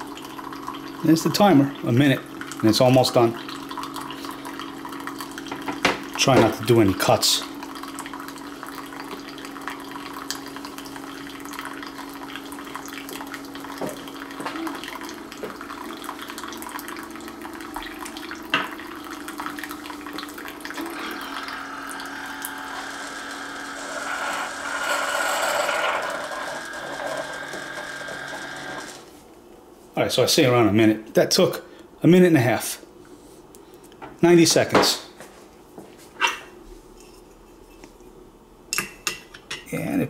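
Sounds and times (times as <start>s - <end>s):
coffee streaming into cup: 0.0s - 29.1s
coffeemaker pump humming: 0.0s - 29.1s.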